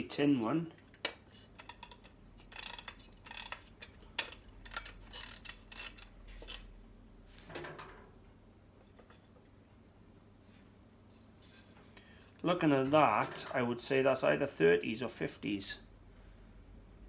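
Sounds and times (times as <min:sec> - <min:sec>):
clock mechanism clicking and scraping: 0:01.5 - 0:06.6.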